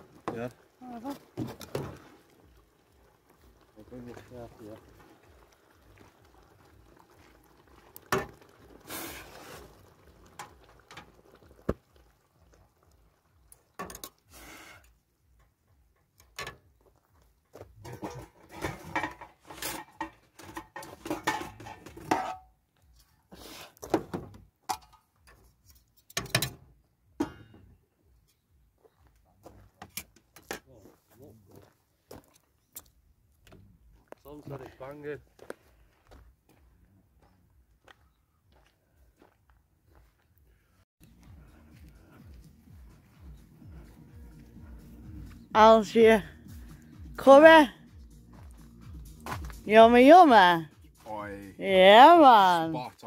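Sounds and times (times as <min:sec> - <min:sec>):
metal tins clinking: 0:17.8 - 0:22.5
utensil scraping metal pan: 0:17.8 - 0:22.5.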